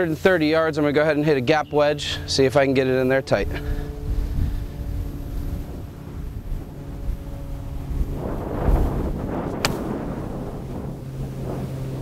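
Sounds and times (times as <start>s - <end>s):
wind noise on microphone: 3.2s - 12.0s
golf club striking ball: 9.5s - 10.1s.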